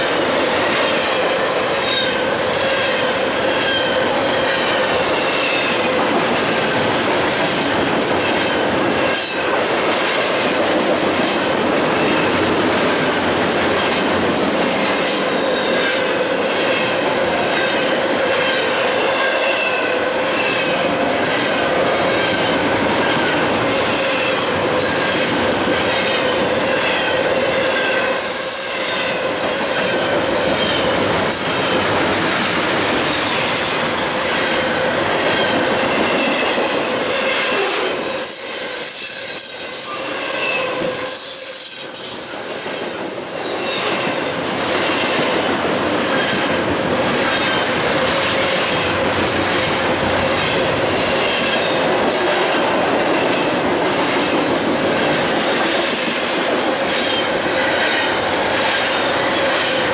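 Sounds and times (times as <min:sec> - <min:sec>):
freight train passing: 0:00.0 - 0:59.9
steel wheels clattering on rails: 0:00.0 - 0:59.9.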